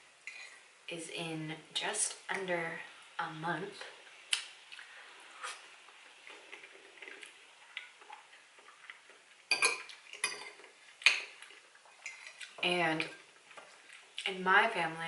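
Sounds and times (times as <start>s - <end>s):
chewing: 4.3s - 12.6s, 13.4s - 14.3s
cutlery clinking on a plate: 9.5s - 11.4s.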